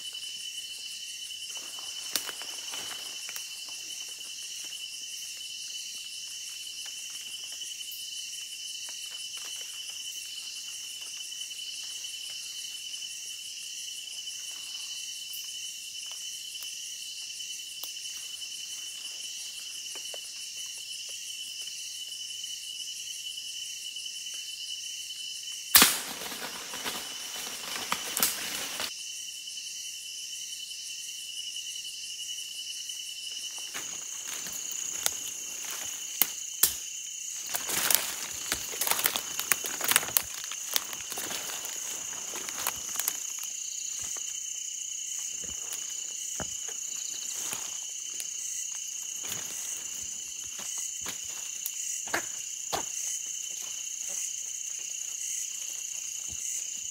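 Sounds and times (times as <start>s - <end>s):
crickets trilling: 0.0s - 56.9s
loud sharp crack: 25.8s - 26.5s
rustling: 37.4s - 44.2s.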